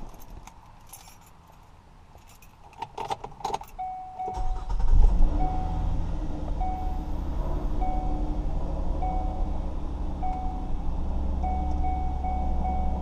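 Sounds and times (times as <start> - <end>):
keys rattling in ignition: 0.0 - 5.0
dashboard warning chimes beeping: 3.7 - 6.0, 6.6 - 8.4, 9.0 - 10.8, 11.4 - 13.0
car engine starting and idling: 3.8 - 13.0.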